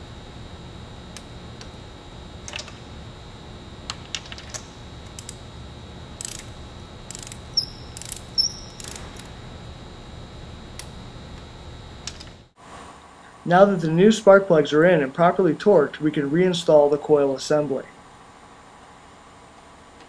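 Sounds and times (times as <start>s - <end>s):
steady low hum: 0.0s - 20.0s
socket ratchet clicking: 6.2s - 6.5s, 7.1s - 9.3s.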